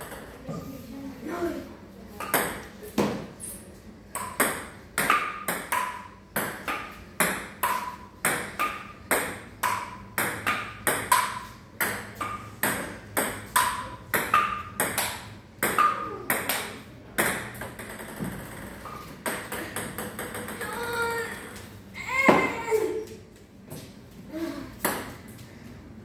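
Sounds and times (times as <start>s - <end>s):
ping pong ball clicking off paddles: 4.1s - 21.7s.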